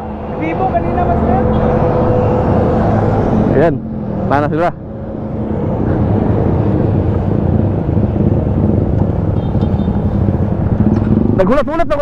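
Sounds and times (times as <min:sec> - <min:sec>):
wind rumble on microphone: 0:00.0 - 0:12.0
small motorcycle engine running: 0:07.5 - 0:11.5.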